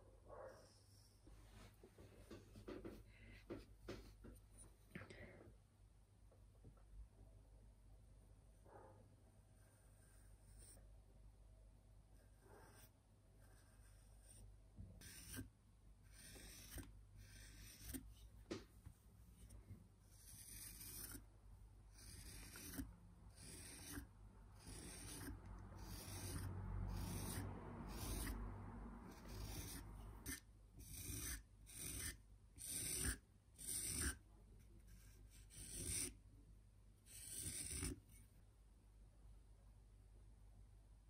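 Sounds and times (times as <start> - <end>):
scraping on clay pot: 15.0 - 18.6, 19.3 - 21.3, 21.9 - 34.2, 34.8 - 36.2, 37.1 - 38.1.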